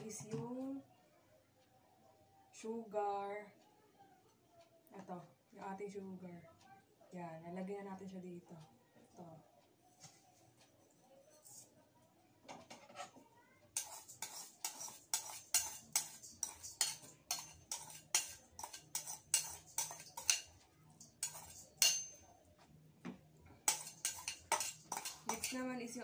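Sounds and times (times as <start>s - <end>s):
knife scraping ceramic bowl: 12.7s - 13.2s, 13.8s - 22.2s, 23.6s - 26.0s.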